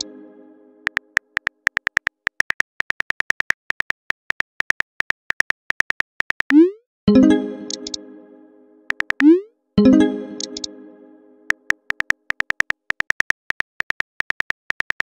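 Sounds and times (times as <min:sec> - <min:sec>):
phone keyboard typing clicks: 0:11.5 - 0:15.0.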